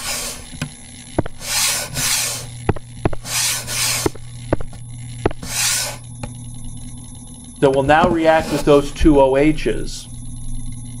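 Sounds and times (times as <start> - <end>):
scratchy rubbing on microphone: 0.0 - 0.6, 1.2 - 4.3, 5.2 - 6.0, 8.2 - 8.8.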